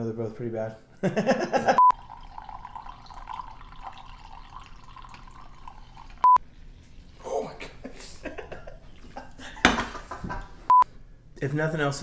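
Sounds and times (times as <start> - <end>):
liquid trickling being poured: 1.9 - 7.3.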